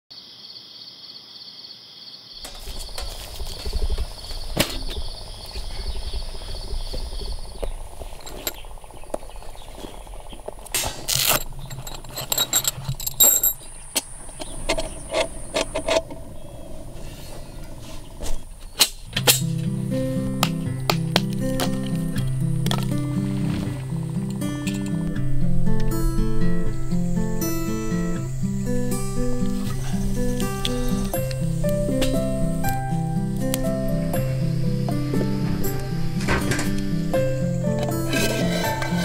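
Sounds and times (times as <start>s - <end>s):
insects trilling: 0.1s - 39.0s
low rumble: 2.4s - 10.7s
sharp clicks and knocks: 34.9s - 37.0s.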